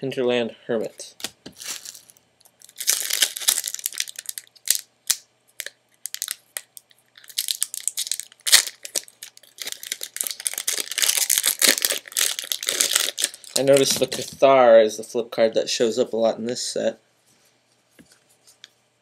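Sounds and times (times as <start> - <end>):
foil wrapper crinkling and tearing: 1.2 - 14.3.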